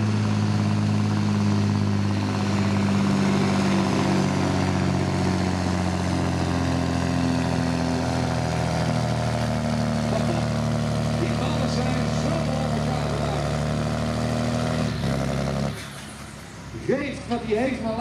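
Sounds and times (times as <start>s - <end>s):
truck diesel engine under load: 0.0s - 18.0s.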